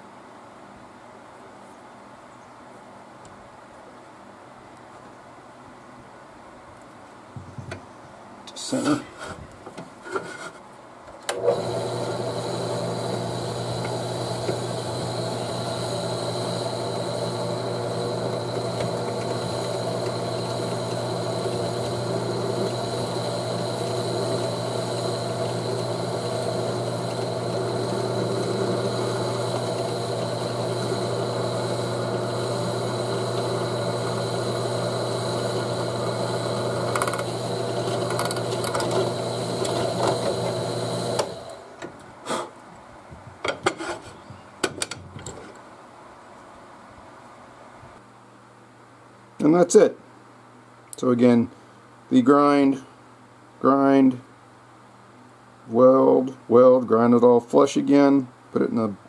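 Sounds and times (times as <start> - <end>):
drill press motor hum and whine: 11.3 - 41.8.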